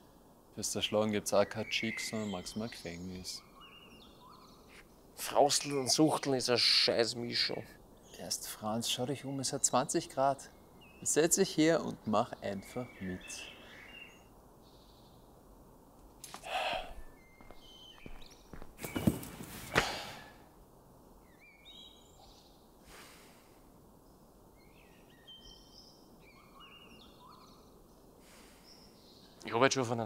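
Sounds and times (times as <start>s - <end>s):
birds chirping: 0.0s - 30.0s
camping chair rustle: 16.0s - 20.4s.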